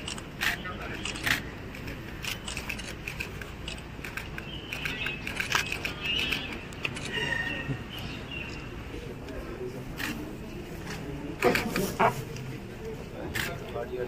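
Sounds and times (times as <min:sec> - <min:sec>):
sharp clicks and crackles: 0:00.0 - 0:07.1
faint crowd voices: 0:00.0 - 0:14.0.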